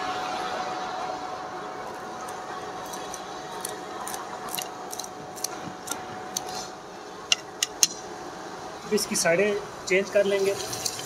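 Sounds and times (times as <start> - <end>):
chicken sizzling in hot oil: 10.4 - 11.0
oil crackling: 10.4 - 11.0.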